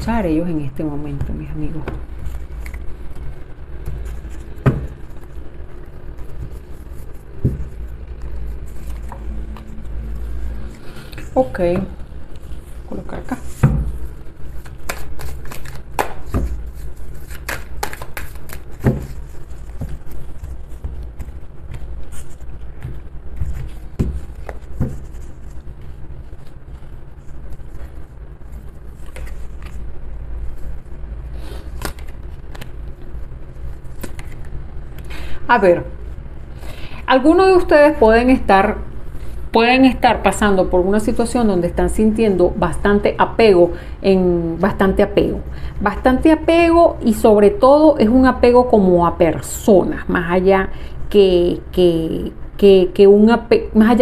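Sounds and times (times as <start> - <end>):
steady low rumble: 0.0 - 14.8.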